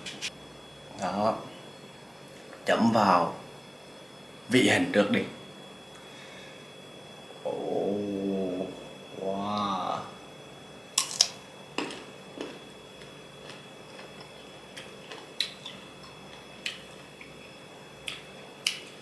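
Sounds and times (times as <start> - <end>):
crisp chewing crunches: 11.1 - 16.8.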